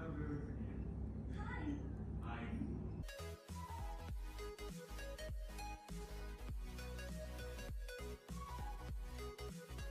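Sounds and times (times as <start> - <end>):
electronic music with a beat: 3.0 - 9.9.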